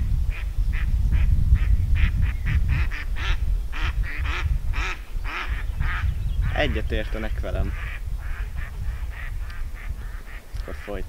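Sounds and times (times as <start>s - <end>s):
wind rumbling on microphone: 0.0s - 11.0s
duck quacking: 2.0s - 6.8s, 7.6s - 11.0s.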